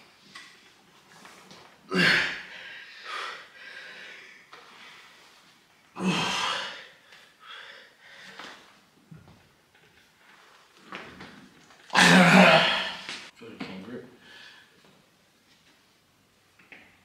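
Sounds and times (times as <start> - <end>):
person breathing hard: 1.9 - 5.0, 6.0 - 8.6.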